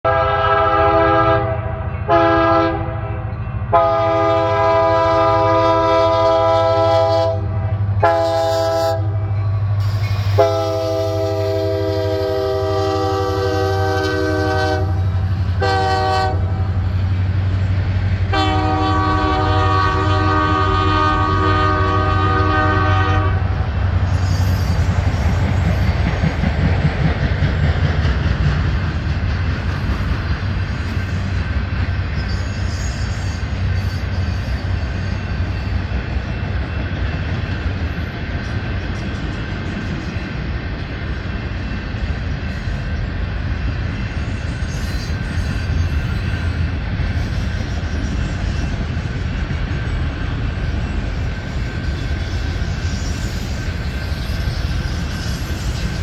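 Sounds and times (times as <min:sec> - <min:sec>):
train air horn blasts: 0:00.0 - 0:16.9, 0:18.3 - 0:24.8
train wheels clacking over rail joints: 0:23.9 - 0:56.0.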